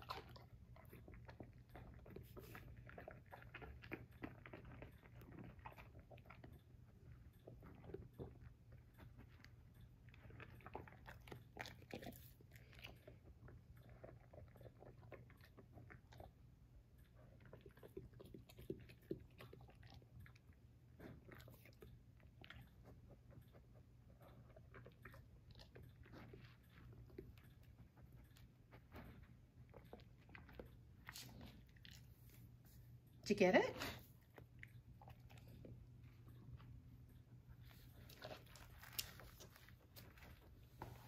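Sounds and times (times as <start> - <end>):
dog crunching lettuce: 0.0 - 16.3, 28.8 - 32.5, 37.5 - 41.0.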